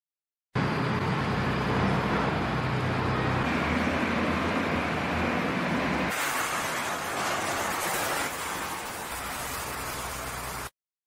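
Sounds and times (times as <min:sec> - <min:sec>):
heavy machinery engines running: 0:00.6 - 0:10.7.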